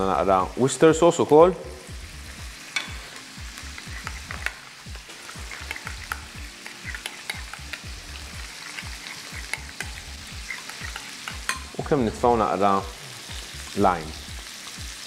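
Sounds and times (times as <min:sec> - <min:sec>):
crab sizzling in a pan: 0:00.0 - 0:15.0
metal utensil stirring sauce: 0:03.7 - 0:11.8.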